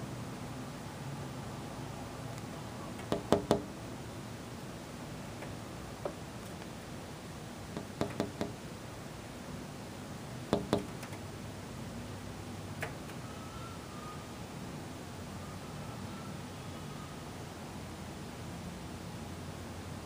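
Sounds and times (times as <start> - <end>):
sharp taps on hard surface: 7.8 - 8.6, 10.5 - 11.1.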